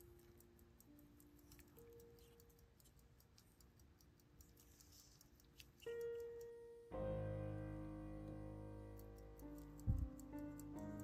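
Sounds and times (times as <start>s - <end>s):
faint fast watch ticking: 0.0s - 6.9s, 8.8s - 11.0s
background music chords: 6.8s - 11.0s.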